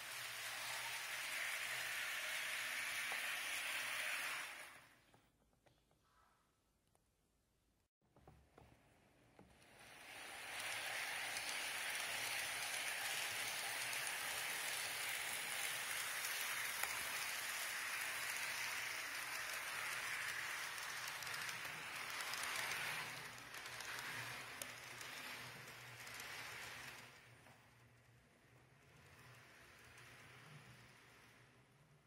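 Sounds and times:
model train rattling on track: 0:00.0 - 0:05.0, 0:09.6 - 0:32.0.

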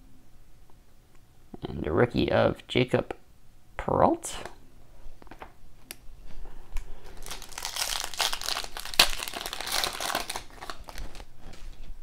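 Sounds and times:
foil wrapper crinkling: 0:07.0 - 0:11.3.

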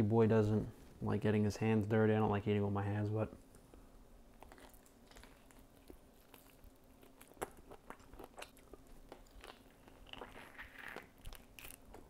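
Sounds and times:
chewing with soft clicks: 0:03.5 - 0:12.0.

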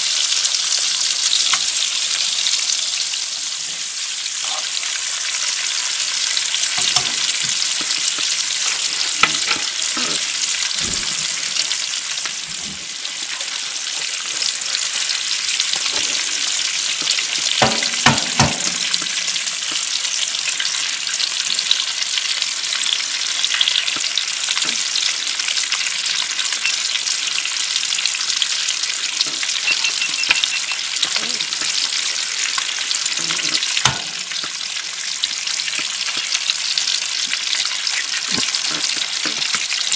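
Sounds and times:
sausage sizzling in frying pan: 0:00.0 - 0:39.9
egg cracking: 0:15.4 - 0:20.8
spoon scraping and clinking: 0:29.7 - 0:31.8.

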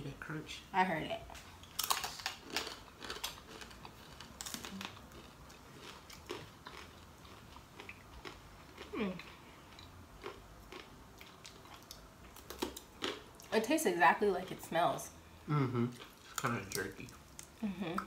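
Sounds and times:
chewing crisp bacon: 0:01.4 - 0:13.6, 0:15.9 - 0:18.0.

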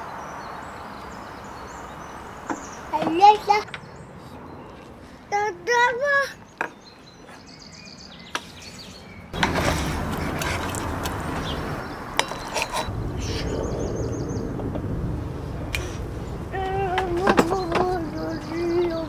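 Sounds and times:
birds chirping: 0:00.0 - 0:19.0
steady rushing noise: 0:09.4 - 0:19.0.

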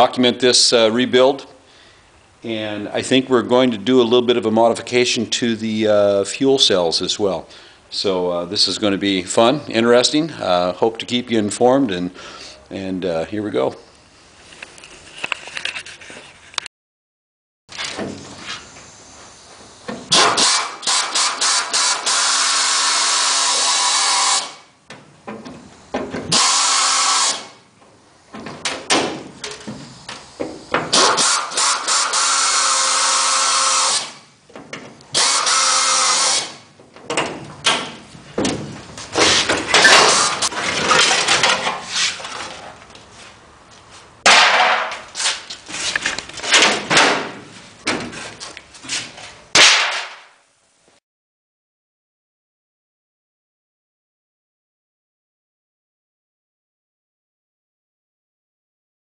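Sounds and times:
air drill drilling metal: 0:20.1 - 0:24.7, 0:26.3 - 0:27.6, 0:30.3 - 0:34.3, 0:35.1 - 0:36.7, 0:39.8 - 0:40.5.

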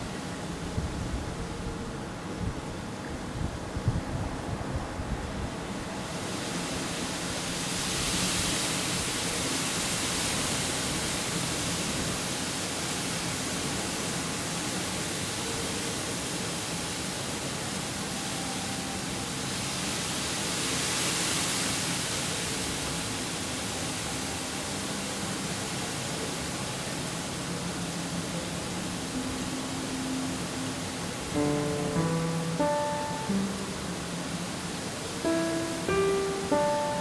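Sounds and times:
rushing wind: 0:00.0 - 0:15.2.

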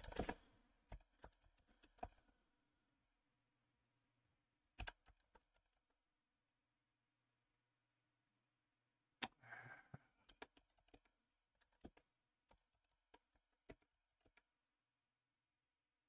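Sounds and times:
computer keyboard keystrokes: 0:00.0 - 0:00.4, 0:04.8 - 0:05.4.

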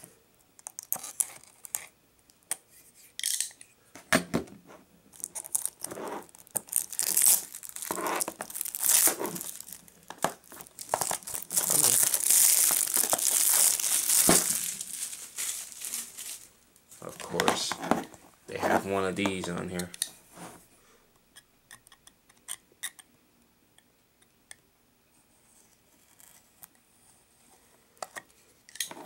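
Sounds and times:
plastic film crinkling: 0:05.1 - 0:18.2
knife slitting plastic wrap: 0:05.2 - 0:09.8, 0:10.8 - 0:16.5.

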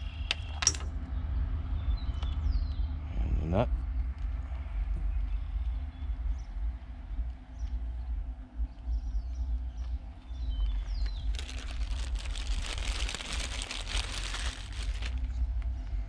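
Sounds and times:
bird chirping: 0:00.0 - 0:03.0, 0:05.0 - 0:12.8
wind rumble on microphone: 0:00.0 - 0:16.0
plastic bag crinkling: 0:10.9 - 0:15.3.

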